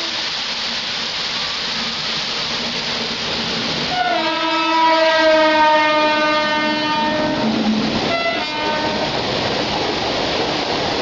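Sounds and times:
moving train rush: 0:00.0 - 0:11.0
waterfall pouring: 0:00.0 - 0:11.0
locomotive horn: 0:03.9 - 0:09.2.

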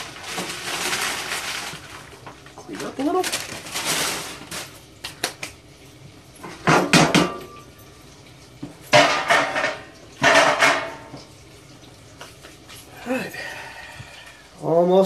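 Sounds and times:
dishes clattering: 0:06.4 - 0:07.8, 0:08.6 - 0:11.3.

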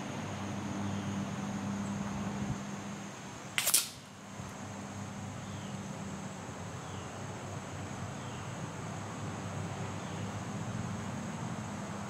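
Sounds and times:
insects chirring: 0:00.0 - 0:12.0
air rifle shot: 0:03.6 - 0:04.1.

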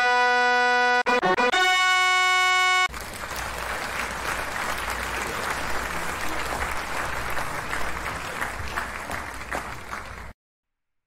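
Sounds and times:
music: 0:00.0 - 0:02.9
crowd applause: 0:02.4 - 0:10.4.

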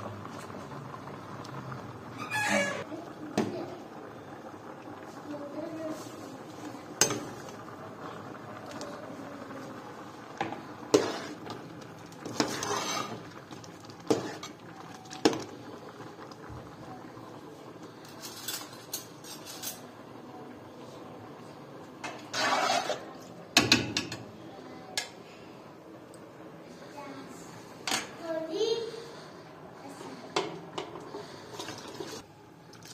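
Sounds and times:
dishes and utensils clinking: 0:18.0 - 0:19.9
short scraping noises: 0:22.2 - 0:23.1.

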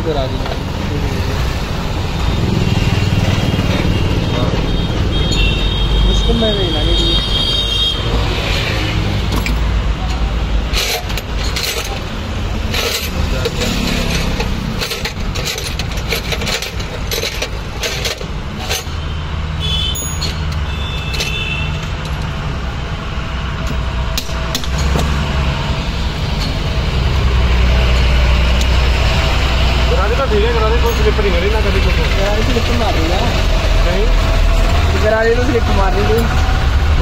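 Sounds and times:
metal tools clinking on workbench: 0:10.7 - 0:19.0, 0:20.0 - 0:21.4.

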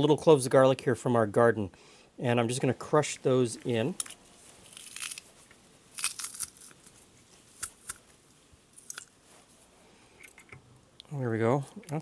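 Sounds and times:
garlic press crunching cloves: 0:04.0 - 0:05.3, 0:05.9 - 0:08.1, 0:08.8 - 0:09.2.

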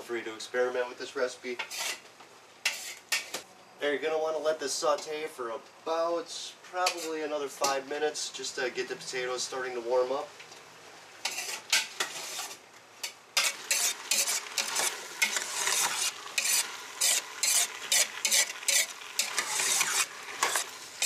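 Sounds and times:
metal spoon scraping pot: 0:01.6 - 0:02.0, 0:02.7 - 0:03.3, 0:11.2 - 0:12.6, 0:13.4 - 0:20.7
food sizzling: 0:10.9 - 0:21.0.

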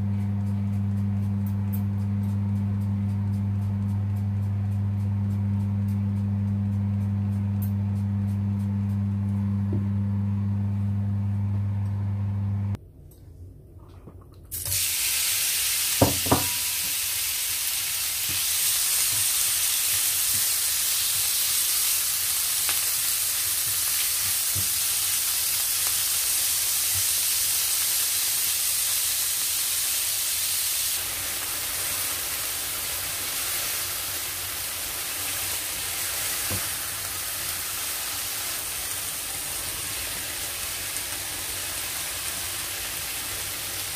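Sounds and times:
steady low hum: 0:00.0 - 0:14.4
chicken sizzling in a frying pan: 0:14.6 - 0:43.9.

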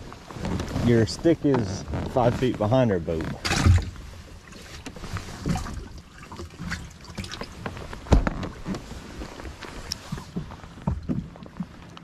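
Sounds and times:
water sloshing and dripping: 0:03.2 - 0:12.0
small knocks against boat: 0:04.7 - 0:08.9, 0:09.9 - 0:12.0.

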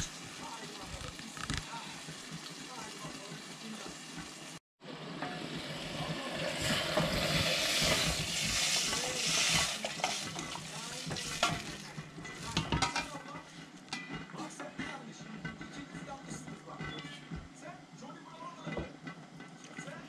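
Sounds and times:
food sizzling in a pan: 0:00.0 - 0:15.2.

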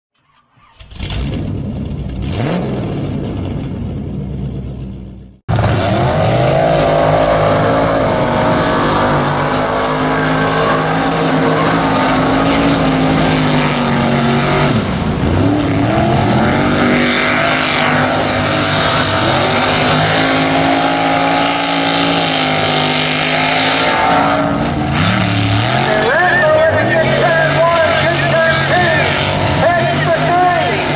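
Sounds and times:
truck engines at high revs: 0:00.2 - 0:30.9.

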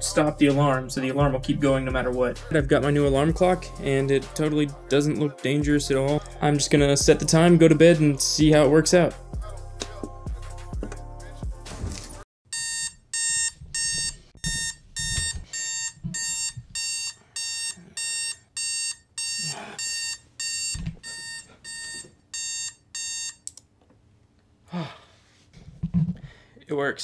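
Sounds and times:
alarm clock beeps: 0:12.5 - 0:23.4.

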